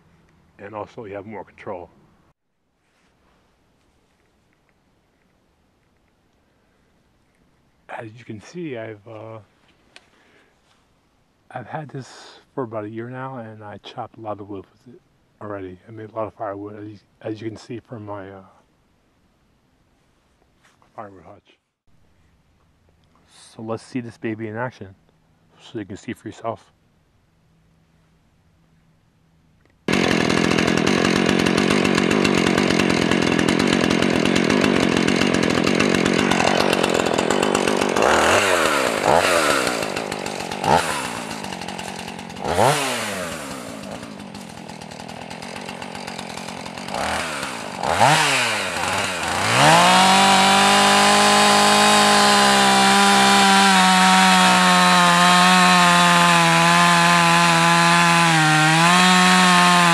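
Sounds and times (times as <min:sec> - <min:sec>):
chainsaw engine revving: 0:29.9 - 0:59.9.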